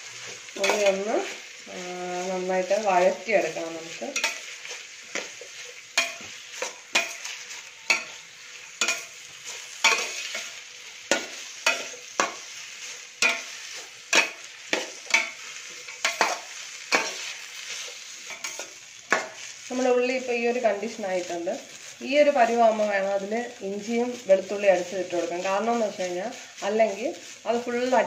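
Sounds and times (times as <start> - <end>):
onions sizzling in a pot: 0.0 - 28.0
metal spatula scraping a pot: 0.1 - 1.5, 2.1 - 19.4.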